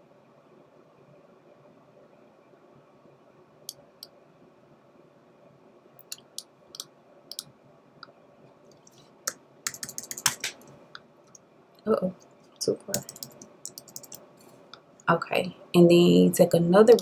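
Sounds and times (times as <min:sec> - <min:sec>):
faint room hiss: 0:00.0 - 0:17.0
computer mouse clicks: 0:06.0 - 0:07.5, 0:08.7 - 0:10.7, 0:12.9 - 0:14.2.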